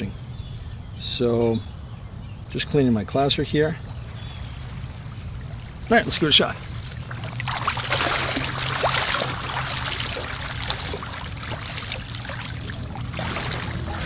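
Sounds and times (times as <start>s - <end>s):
shallow seawater splashing: 4.9s - 14.0s
low rumble: 7.0s - 14.0s.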